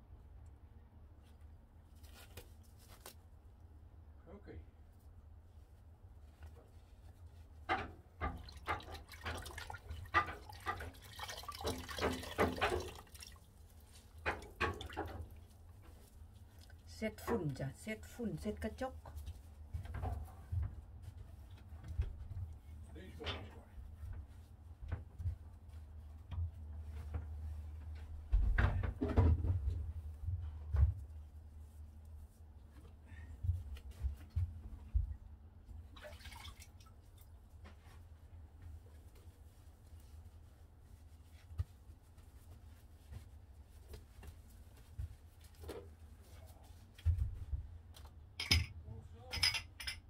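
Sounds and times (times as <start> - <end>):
knocks and rattles: 7.6 - 13.1
water dripping and splashing: 8.2 - 16.8, 35.9 - 37.4.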